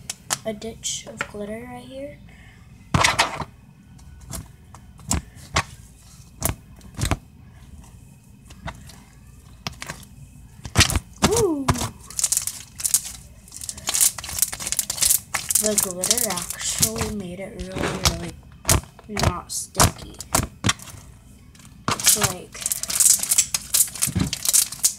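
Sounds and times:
slime sticky pops and crackling: 21.9s - 24.9s.

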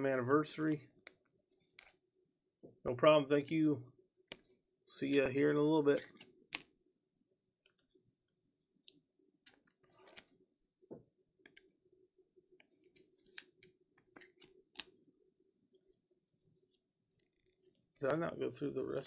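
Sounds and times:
trading cards clicking and rustling: 9.5s - 10.3s.

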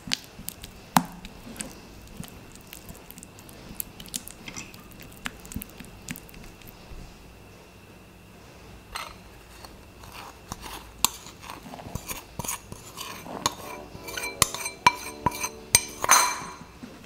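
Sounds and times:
spatula clinking against glass bowl: 12.0s - 16.7s.

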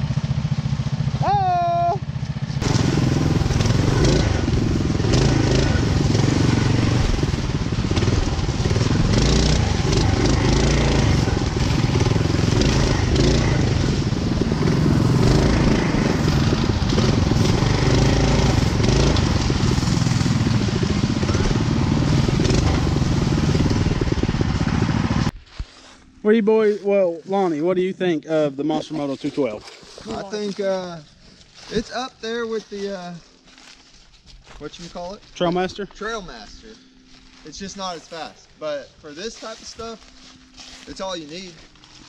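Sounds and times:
dry leaves crunching under tires: 0.0s - 1.2s, 2.1s - 42.0s
mini bike engine running: 0.0s - 25.3s.

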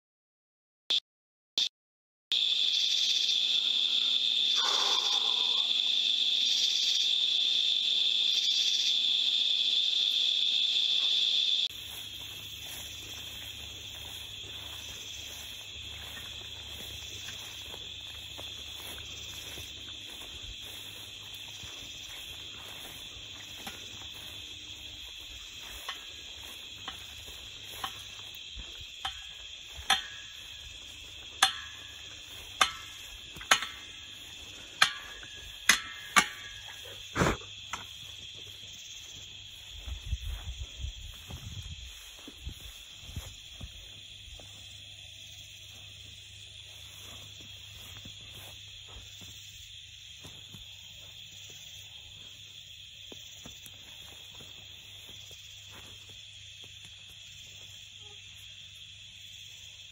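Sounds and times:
crickets trilling: 2.3s - 59.9s
sharp ticks: 29.0s - 36.8s.

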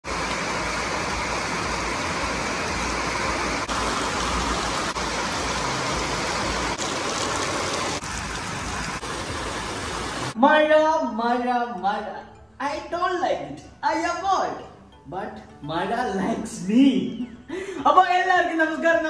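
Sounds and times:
heavy rain pouring: 0.0s - 10.4s.

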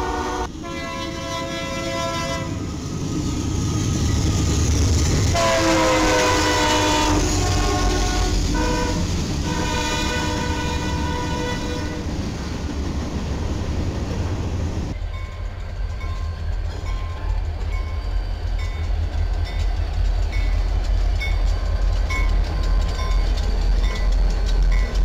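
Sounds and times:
train horn blast: 0.0s - 2.7s, 5.3s - 12.1s
diesel locomotive engine rumble: 0.0s - 25.0s
train wheels rumbling on rails: 0.0s - 25.0s.

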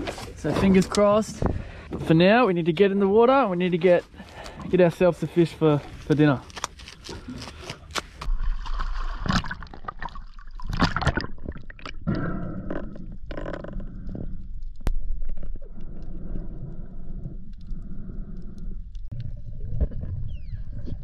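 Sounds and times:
water splashes: 8.3s - 12.2s
underwater gurgling and rumble: 8.3s - 21.0s.

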